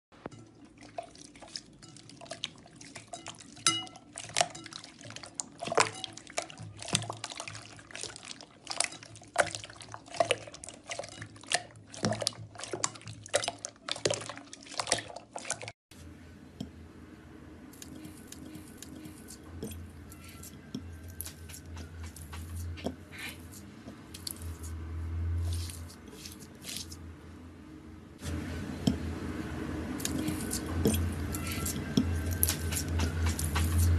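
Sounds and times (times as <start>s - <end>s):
water splashing in glass bowl: 0.3s - 15.7s
low hum: 15.9s - 22.9s.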